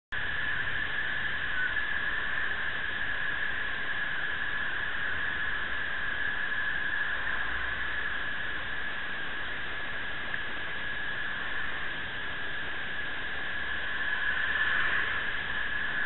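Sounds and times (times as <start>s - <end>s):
steady hiss with faint whistling: 0.1s - 16.0s.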